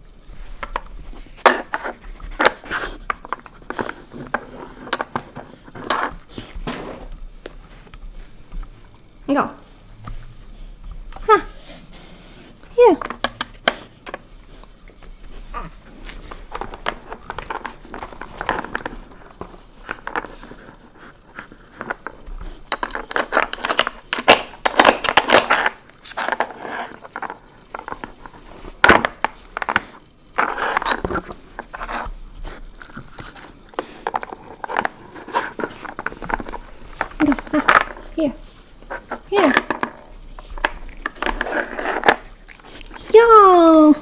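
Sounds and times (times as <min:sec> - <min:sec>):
plastic puzzle pieces scraping: 0:00.5 - 0:07.1, 0:15.3 - 0:43.9
dog sniffing: 0:01.1 - 0:04.9, 0:09.6 - 0:12.7, 0:29.7 - 0:37.2, 0:40.1 - 0:43.6.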